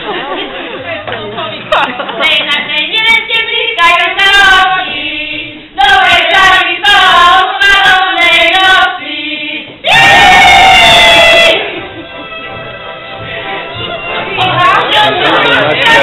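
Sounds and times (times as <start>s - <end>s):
women singing unaccompanied: 2.1s - 11.8s, 14.3s - 16.0s.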